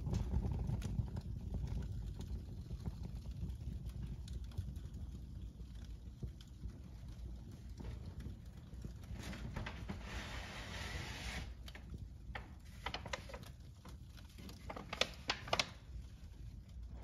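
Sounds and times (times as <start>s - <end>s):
fire crackling: 0.0s - 17.0s
low rumble of fire: 0.0s - 17.0s
hiss: 9.9s - 11.6s.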